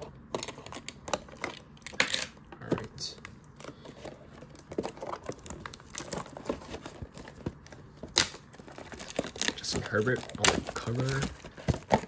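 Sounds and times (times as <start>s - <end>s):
plastic wrap crinkling and tearing: 3.0s - 12.0s.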